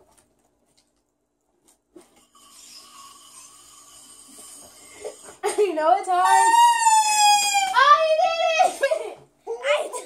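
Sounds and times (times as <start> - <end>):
breathy clarinet hiss: 2.3 - 5.4.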